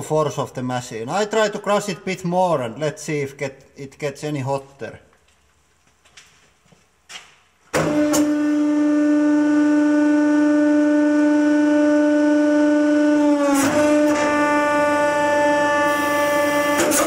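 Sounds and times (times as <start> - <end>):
hydraulic press pump humming: 7.7 - 17.0.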